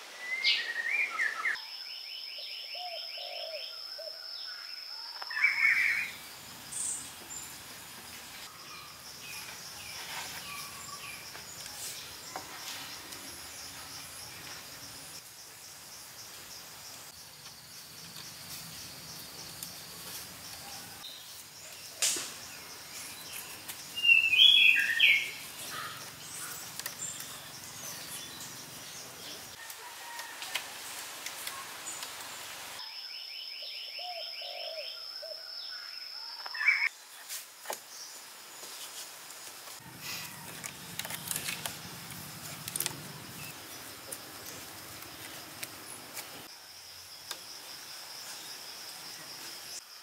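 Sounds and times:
birds chirping: 0:20.4 - 0:29.6.

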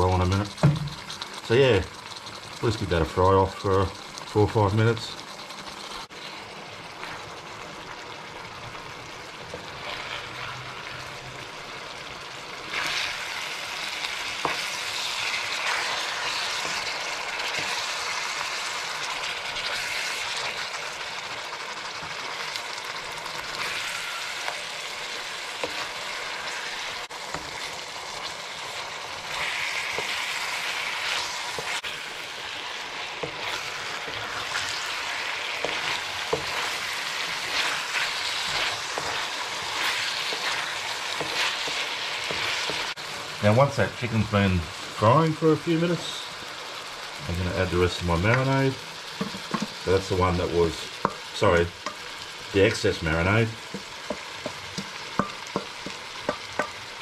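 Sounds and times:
food sizzling in hot oil: 0:00.0 - 0:57.0
wooden spoon scraping pan: 0:33.2 - 0:43.3.

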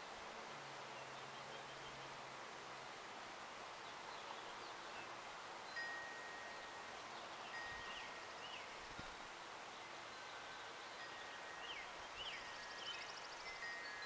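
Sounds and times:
faint high ringing tones: 0:05.7 - 0:09.2.

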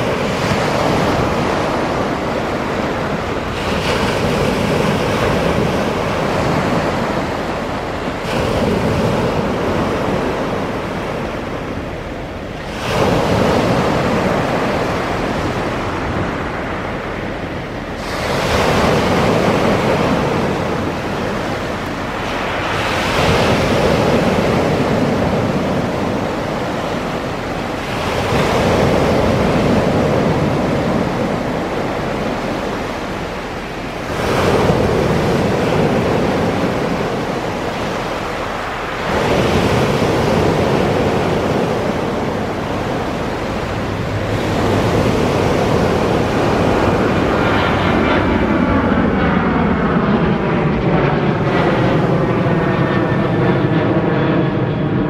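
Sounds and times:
sea waves breaking on pebble beach: 0:18.0 - 0:47.4.

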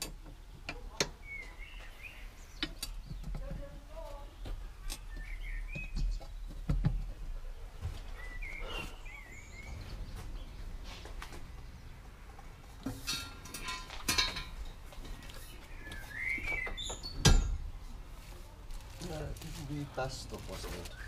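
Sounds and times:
faint birds chirping: 0:00.0 - 0:21.0
metal parts knocking and clinking: 0:13.1 - 0:14.8.

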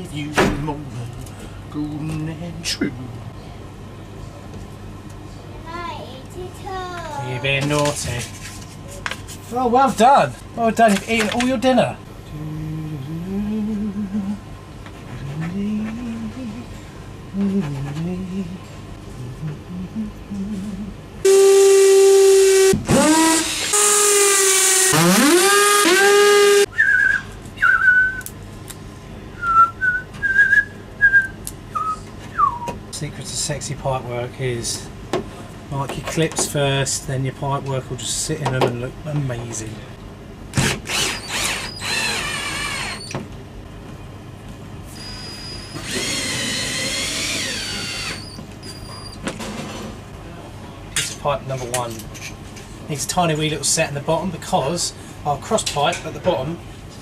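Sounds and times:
reedy whistle-like tone: 0:21.3 - 0:22.8, 0:26.7 - 0:28.2, 0:29.4 - 0:32.7
power drill drilling into wall: 0:21.3 - 0:26.7, 0:40.6 - 0:43.1, 0:45.6 - 0:48.4
person whistling a tune: 0:26.7 - 0:28.3, 0:29.4 - 0:32.7.

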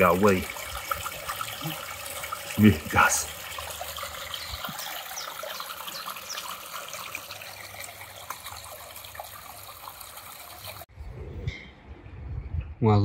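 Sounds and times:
water splashing over rocks: 0:00.0 - 0:10.9.

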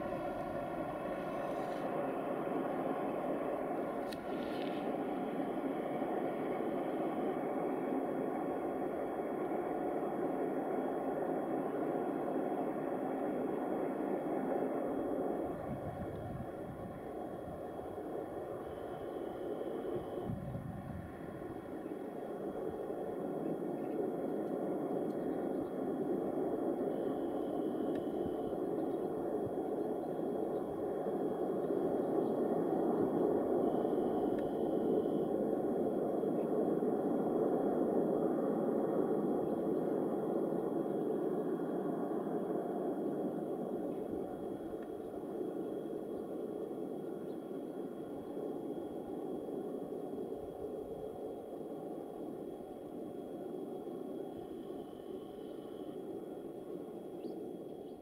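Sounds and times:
distant freight train rumbling: 0:00.0 - 0:39.1.

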